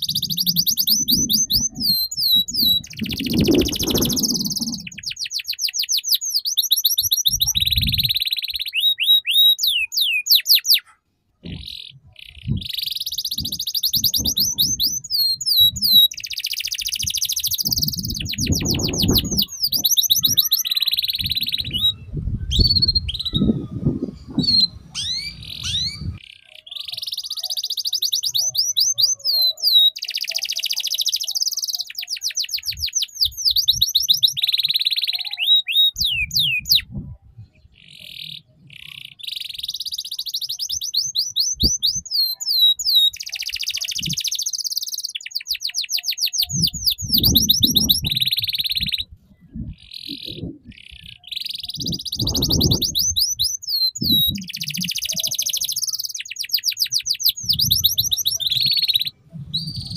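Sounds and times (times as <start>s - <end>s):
canary singing trills: 0.0s - 59.9s
low rumbling noise: 21.2s - 26.2s, 59.2s - 59.9s.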